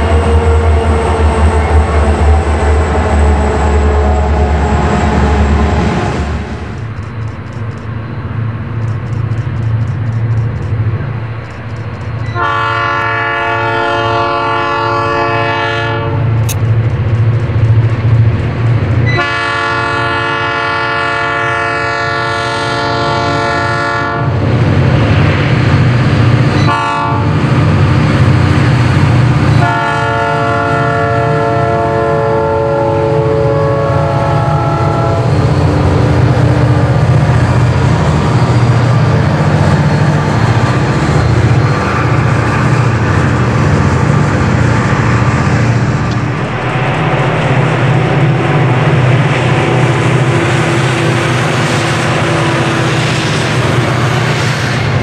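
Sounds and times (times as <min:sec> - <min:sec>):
train rumbling past: 0:00.0 - 0:55.0
locomotive air horn blasts: 0:12.3 - 0:16.4, 0:19.1 - 0:24.4, 0:26.6 - 0:27.4, 0:29.6 - 0:35.3
wheels clicking over rails: 0:16.4 - 0:19.2.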